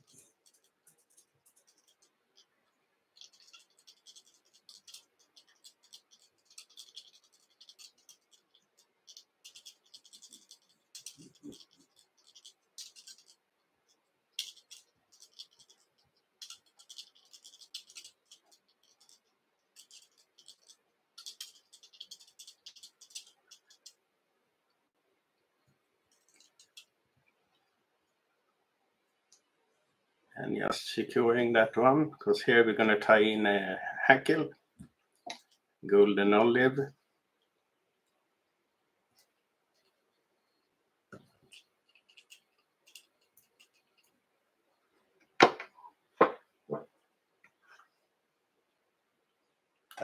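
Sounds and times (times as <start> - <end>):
thread rustling: 0.0 - 24.0, 25.6 - 27.7, 39.1 - 44.8.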